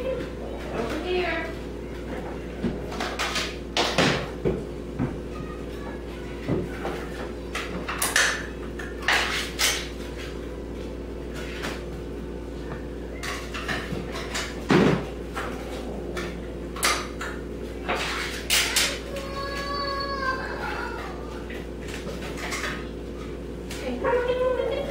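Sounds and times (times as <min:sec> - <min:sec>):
steady low hum: 0:00.0 - 0:24.9
dishes and utensil clattering: 0:13.2 - 0:19.0, 0:21.9 - 0:22.9.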